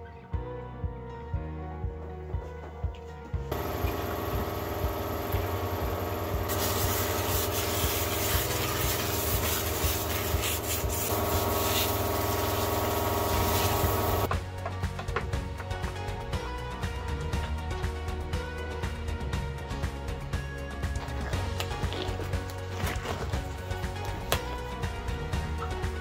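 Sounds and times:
low hum: 3.5 - 14.3
steam cleaner hissing: 3.5 - 14.3.

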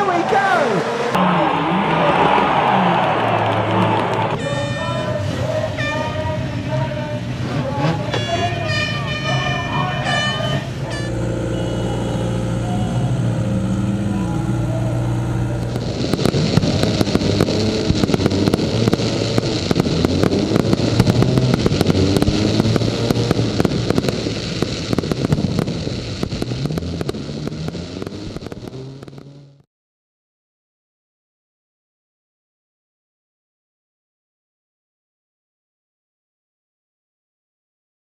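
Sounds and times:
fireworks crackling and banging: 1.5 - 29.6
vehicle engine running: 2.6 - 29.6.

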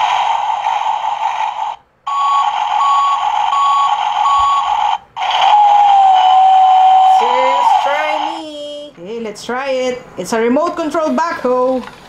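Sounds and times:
toy engine sound effect: 0.0 - 8.7
reversing beeps: 2.1 - 4.8.

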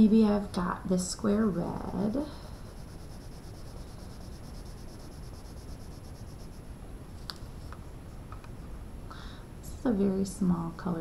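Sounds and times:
colored pencil shading on paper: 1.8 - 6.6.

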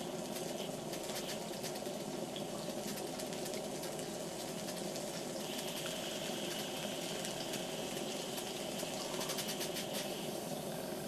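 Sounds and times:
toy steam engine hissing and ticking: 4.6 - 10.9.

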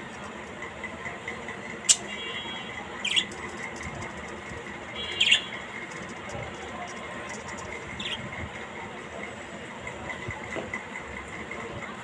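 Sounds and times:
steady background hum: 0.0 - 12.0
parakeet calls: 1.8 - 3.7, 4.9 - 5.9, 7.4 - 8.4.

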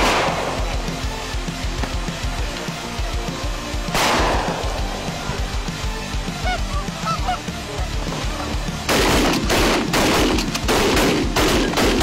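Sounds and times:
shotgun blasts: 0.0 - 0.8, 3.9 - 5.0, 8.9 - 12.0
geese honking: 4.7 - 9.9.

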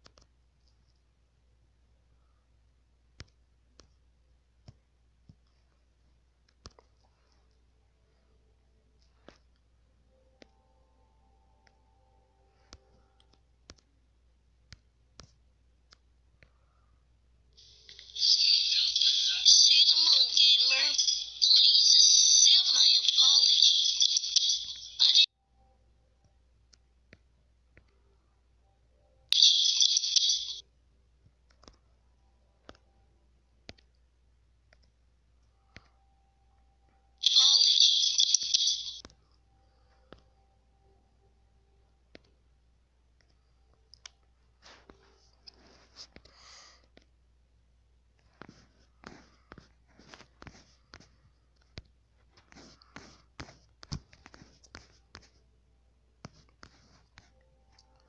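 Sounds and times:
fingertips tapping touchscreen: 0.0 - 1.1, 3.0 - 7.6, 12.5 - 16.8, 26.1 - 28.3, 31.2 - 40.5, 42.0 - 42.5, 48.1 - 55.5, 56.2 - 58.0
hissy high-pitched video audio: 17.6 - 25.3, 29.3 - 30.6, 37.2 - 39.1.

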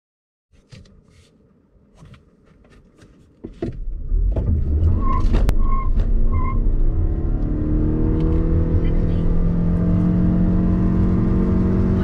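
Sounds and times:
car drivetrain and road rumble: 0.6 - 12.0.

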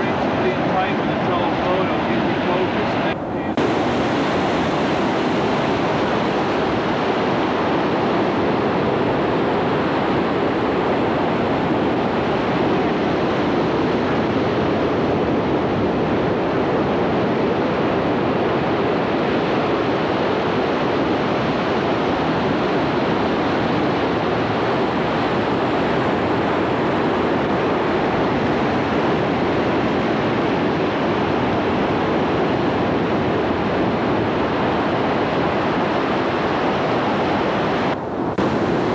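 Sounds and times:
ocean surf breaking on rocks: 0.0 - 14.6.

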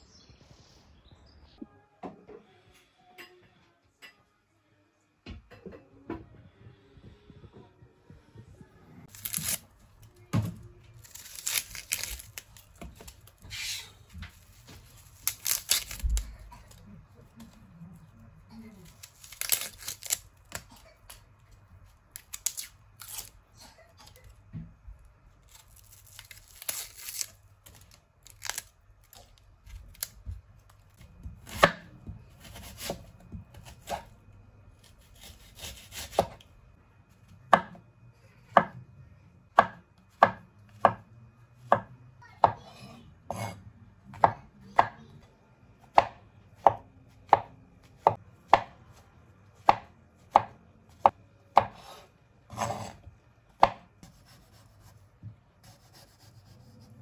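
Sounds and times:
knife chopping on cutting board: 31.2 - 34.1, 34.9 - 36.4, 37.5 - 37.8, 39.6 - 41.0, 41.7 - 45.0, 45.9 - 48.8, 49.6 - 53.0, 53.6 - 54.9.

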